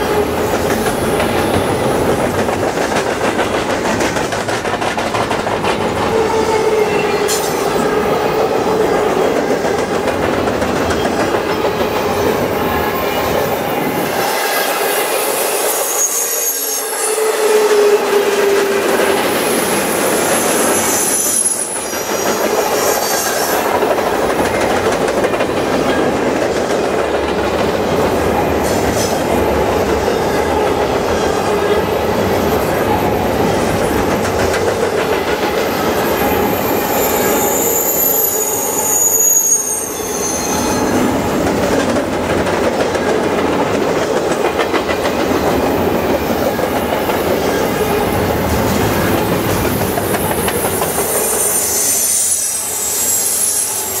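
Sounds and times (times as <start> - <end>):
steel wheels rumbling on rail: 0.0 - 54.0
train wheel squeals: 5.9 - 10.0, 10.6 - 26.8, 28.3 - 41.4, 44.7 - 54.0.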